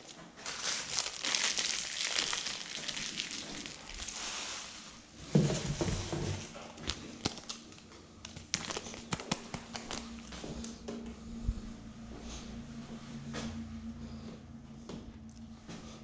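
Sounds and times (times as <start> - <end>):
packaging crinkling: 0.0 - 4.4, 6.7 - 10.3.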